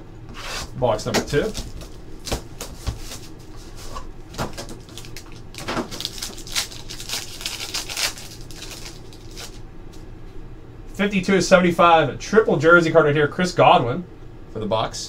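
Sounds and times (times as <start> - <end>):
foil wrapper crinkling and tearing: 4.4 - 9.6.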